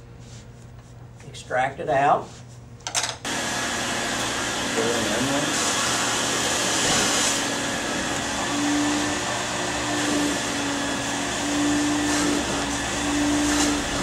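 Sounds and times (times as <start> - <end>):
carpet extractor vacuum hissing: 3.3 - 14.0.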